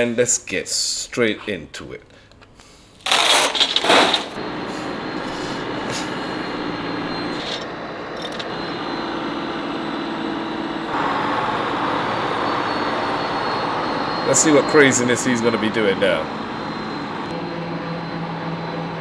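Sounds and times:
truck engine running: 0:04.4 - 0:19.0.

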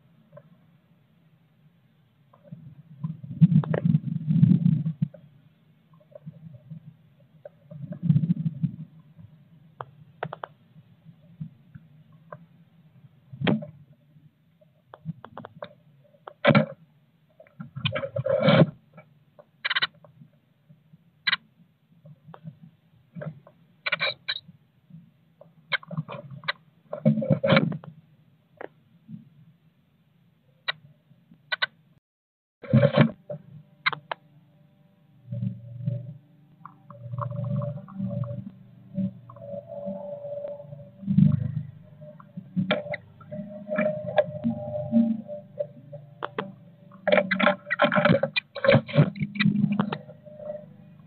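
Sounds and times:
muffled low rustling: 0:02.4 - 0:10.2.

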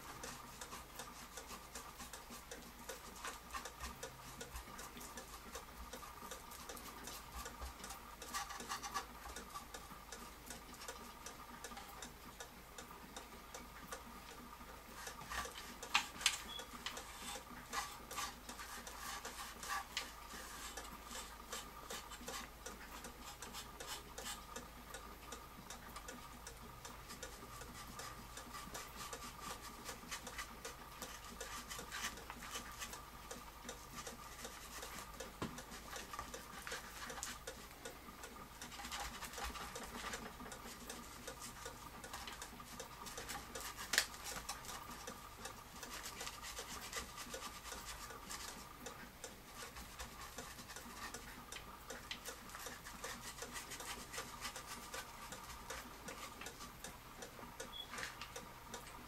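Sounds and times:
clock ticking: 0:00.0 - 0:59.0
sponge brush rubbing on wood: 0:17.0 - 0:24.5, 0:45.8 - 0:48.6, 0:52.4 - 0:56.4.

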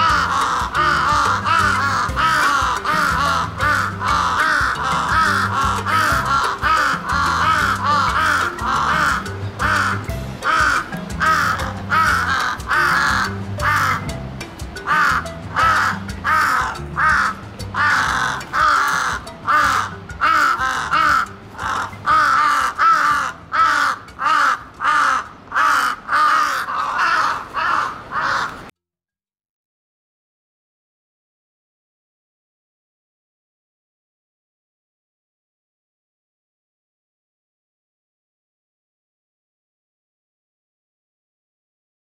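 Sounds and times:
crow cawing: 0:00.0 - 0:14.1, 0:14.8 - 0:28.7
background music: 0:00.0 - 0:26.4.

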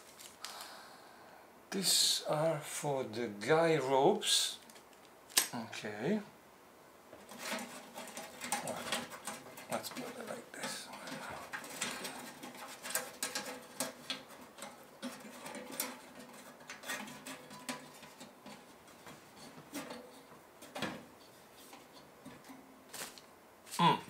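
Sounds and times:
metal stove parts clicking: 0:07.2 - 0:21.0.

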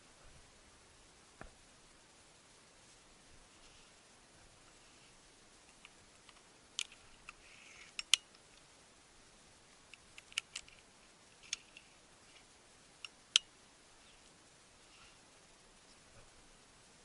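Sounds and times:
faint steady hiss: 0:00.0 - 0:17.0
small sharp clicks: 0:05.6 - 0:08.7, 0:09.8 - 0:13.5.

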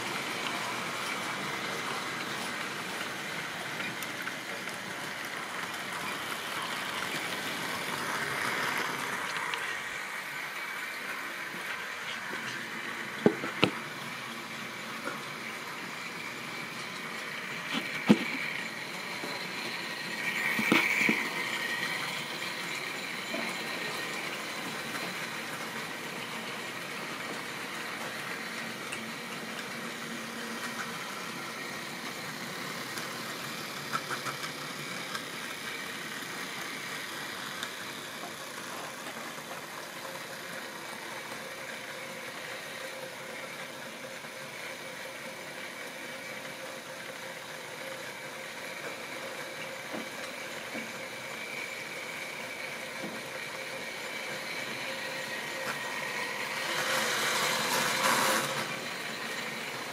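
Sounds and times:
model train running on track: 0:00.0 - 0:59.9.

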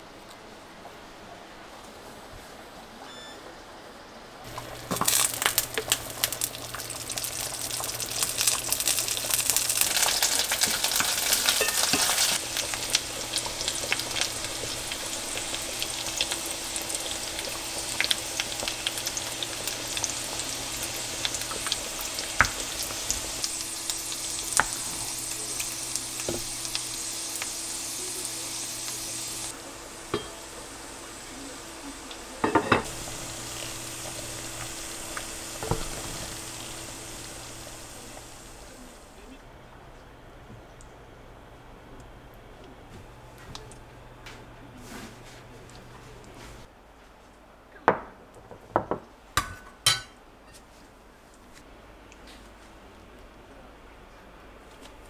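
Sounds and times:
food sizzling in frying pan: 0:04.4 - 0:39.2.

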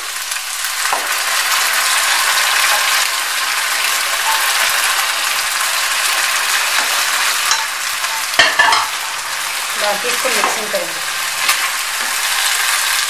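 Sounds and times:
oil sizzling in a wok: 0:00.0 - 0:13.0.

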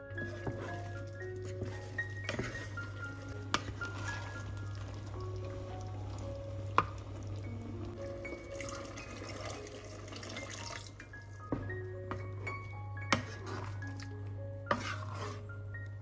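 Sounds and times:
background music: 0:00.0 - 0:16.0
liquid pouring into pot: 0:03.5 - 0:11.1.

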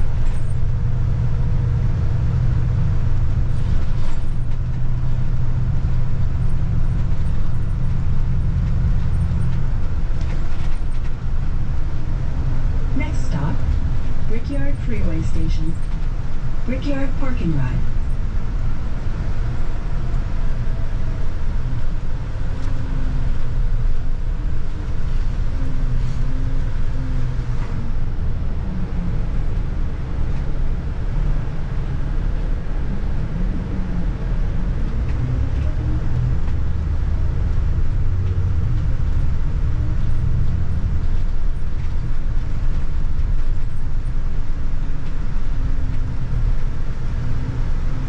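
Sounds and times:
bus engine drone: 0:00.0 - 0:48.0
road rumble: 0:00.0 - 0:48.0
faint whine: 0:12.3 - 0:18.9.

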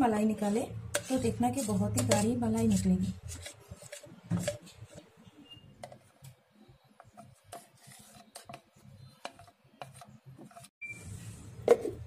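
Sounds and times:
spoon scraping cream: 0:00.0 - 0:05.1, 0:07.0 - 0:10.7.

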